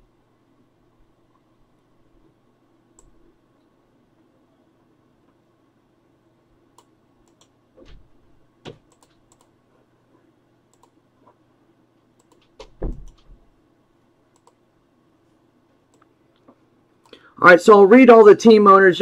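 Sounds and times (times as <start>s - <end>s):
mouse and keyboard clicking: 8.7s - 9.5s, 10.7s - 11.0s, 12.2s - 13.2s, 14.4s - 14.6s.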